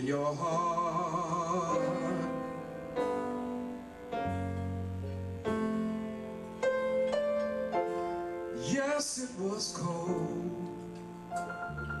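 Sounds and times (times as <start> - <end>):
person singing: 0.0 - 3.1, 8.6 - 11.4
piano chords ringing: 0.0 - 12.0
low bass note: 1.6 - 7.8.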